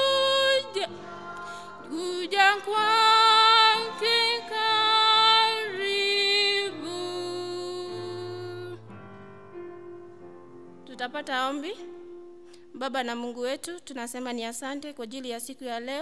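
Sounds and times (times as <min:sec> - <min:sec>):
woman singing a hymn: 0:00.0 - 0:08.9.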